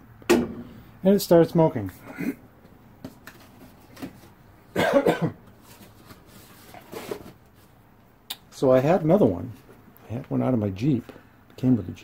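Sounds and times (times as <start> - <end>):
man coughing: 2.1 - 2.4, 4.7 - 5.4.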